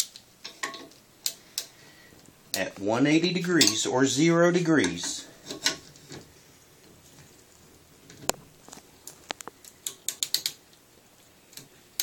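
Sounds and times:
wrench clicking on metal: 9.8 - 10.6.

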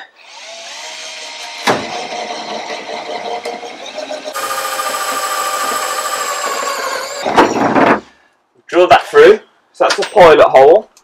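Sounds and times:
cordless drill whining: 4.3 - 7.3.

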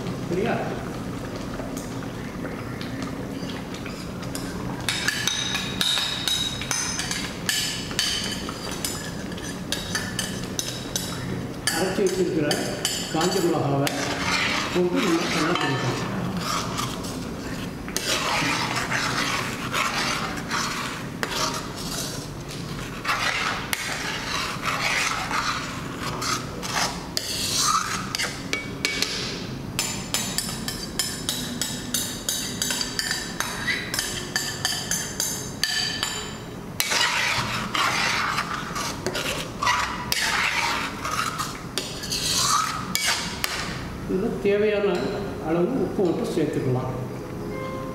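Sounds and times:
metal spoon scraping wok: 8.3 - 28.5, 32.3 - 43.7.

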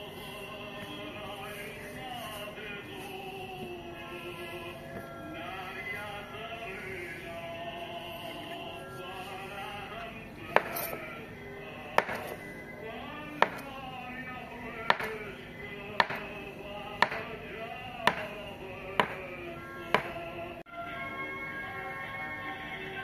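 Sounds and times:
background music: 0.0 - 23.0
knife chopping on countertop: 10.5 - 11.0, 12.0 - 12.4, 13.4 - 13.7, 14.9 - 15.2, 16.0 - 16.3, 17.0 - 17.3, 18.1 - 18.4, 19.0 - 19.2, 20.0 - 20.2.

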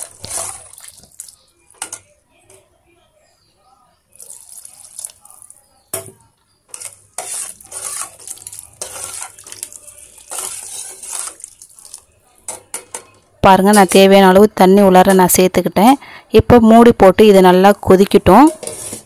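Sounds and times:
water pouring into a pot: 4.1 - 5.6, 6.9 - 12.2.

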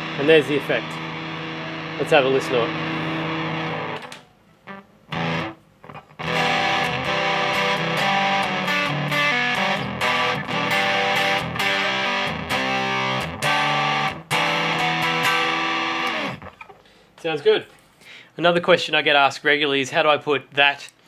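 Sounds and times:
fuzz-distorted electric guitar: 0.0 - 16.7.

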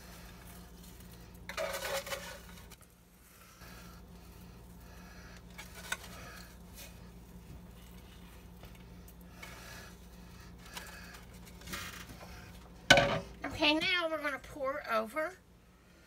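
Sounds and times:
crushed crackers rustling: 4.4 - 12.8.

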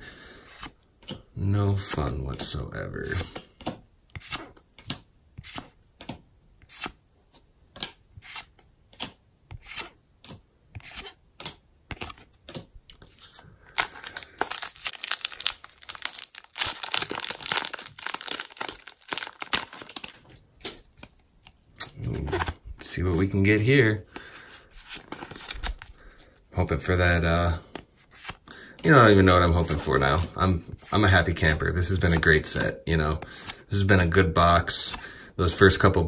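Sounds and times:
foil wrapper crinkling and tearing: 13.7 - 20.9.

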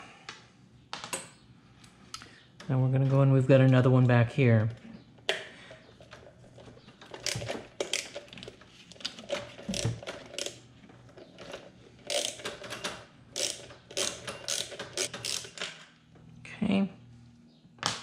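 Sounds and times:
ratchet wrench clicking: 12.1 - 12.5, 13.4 - 15.6.

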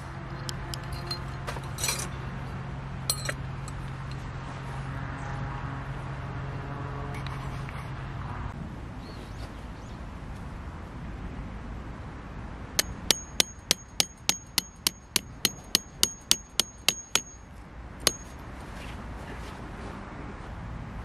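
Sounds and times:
tent peg hammer strikes ringing: 12.8 - 18.4.

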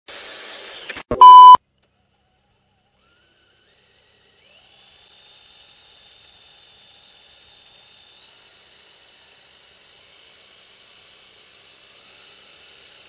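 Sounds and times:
loud electronic beep: 1.1 - 1.6.

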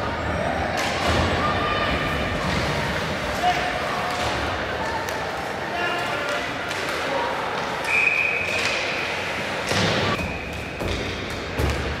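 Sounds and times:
ice rink ambience: 0.0 - 12.0
referee's whistle: 7.9 - 8.6.

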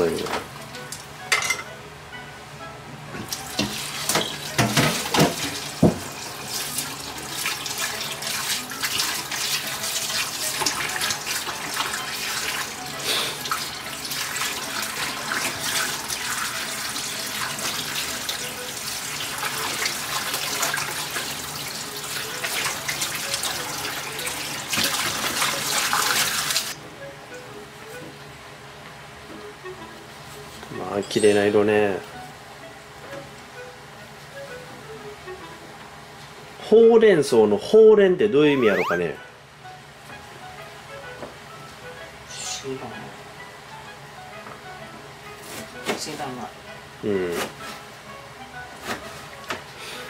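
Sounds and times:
tap water running into sink: 3.2 - 12.8, 13.4 - 26.8.

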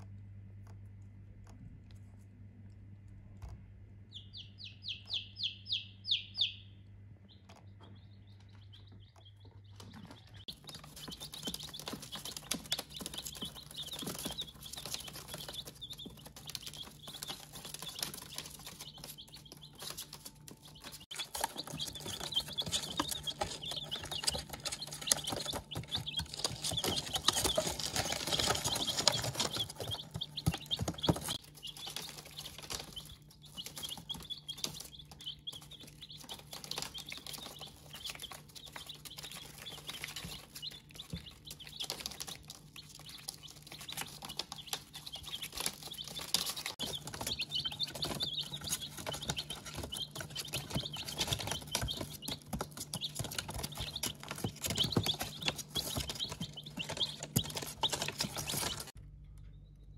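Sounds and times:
chicks peeping: 0.0 - 59.9.

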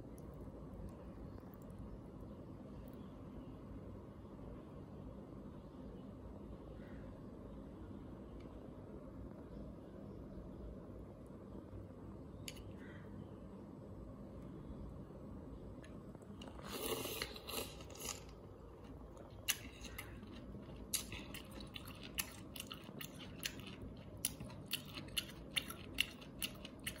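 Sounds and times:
noodle slurping: 16.4 - 18.3
chewing with mouth clicks: 16.4 - 27.0.

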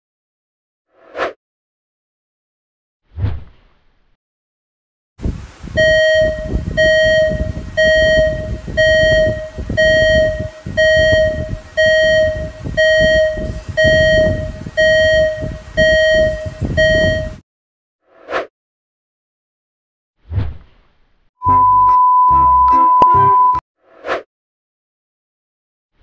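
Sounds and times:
repeating warning beep: 5.8 - 17.4.

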